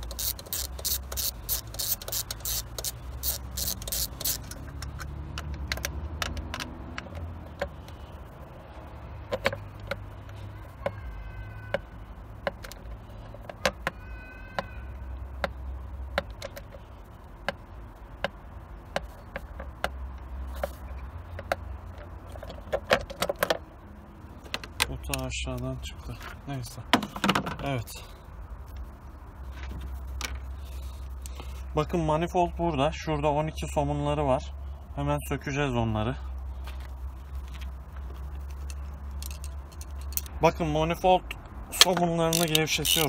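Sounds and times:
ratchet wrench clicking: 0:00.0 - 0:07.9, 0:38.5 - 0:40.4, 0:41.8 - 0:43.0
steady low hum: 0:23.4 - 0:42.8.

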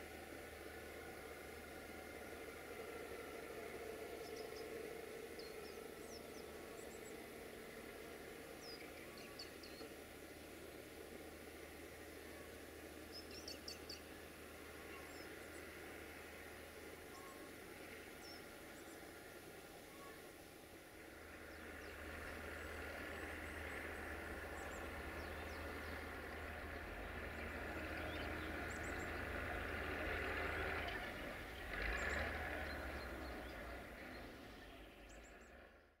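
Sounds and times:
distant engine running: 0:00.0 - 0:35.9
small birds chirping: 0:08.5 - 0:20.4, 0:21.0 - 0:29.4.

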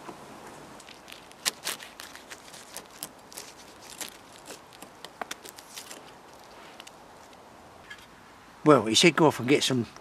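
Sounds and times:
knife prising bark off: 0:01.3 - 0:08.0.

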